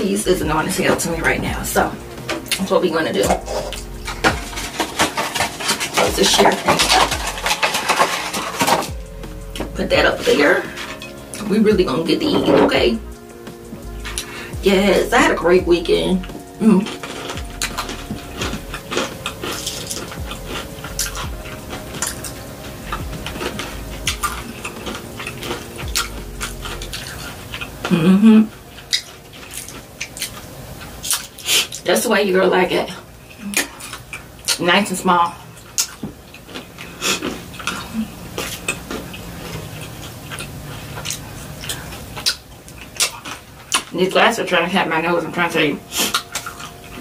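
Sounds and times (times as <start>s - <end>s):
wet mouth sounds: 3.3s - 4.7s, 16.2s - 30.4s, 45.9s - 47.0s
chewing crunchy fried chicken: 3.3s - 11.5s, 12.2s - 14.5s, 16.1s - 31.9s, 33.0s - 34.6s, 35.2s - 44.7s, 45.8s - 47.0s.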